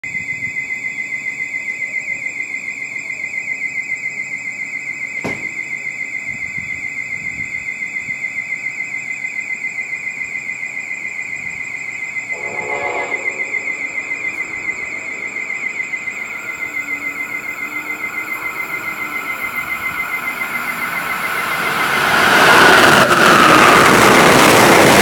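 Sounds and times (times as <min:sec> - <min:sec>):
warbling platform alarm: 0:11.5 - 0:25.0.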